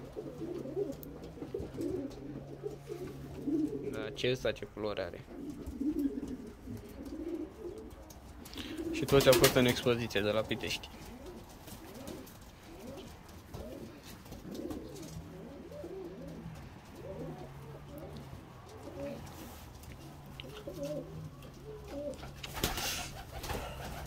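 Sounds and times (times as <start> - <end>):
pigeons cooing: 0.0 - 4.3, 5.2 - 24.0
wings fluttering: 5.5 - 9.8, 11.0 - 18.0, 18.6 - 24.0.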